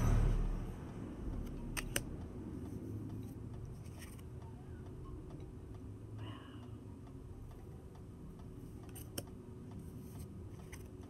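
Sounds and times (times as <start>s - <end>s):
low room hum: 0.0s - 11.0s
cards shuffling with soft clicks: 3.7s - 4.3s, 9.9s - 11.0s.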